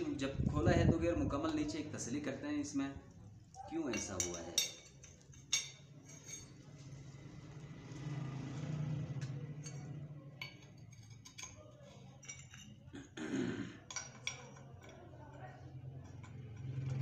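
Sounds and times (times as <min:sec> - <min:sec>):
metallic clinks of metal parts: 0:03.9 - 0:06.7, 0:09.6 - 0:12.9.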